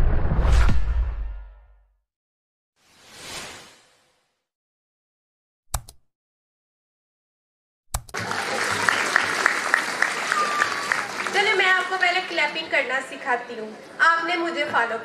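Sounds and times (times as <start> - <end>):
audience applause: 8.1 - 13.1.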